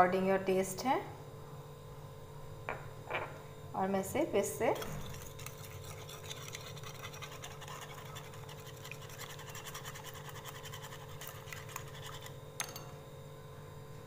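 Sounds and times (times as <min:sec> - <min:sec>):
whisk beating eggs in glass bowl: 0:04.7 - 0:12.8.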